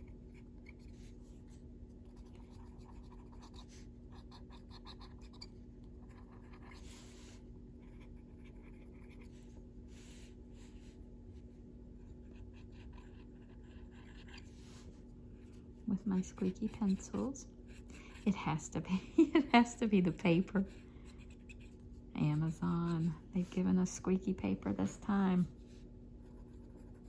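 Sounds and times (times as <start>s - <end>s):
pencil rubbing on paper: 16.1s - 18.6s, 19.9s - 23.7s.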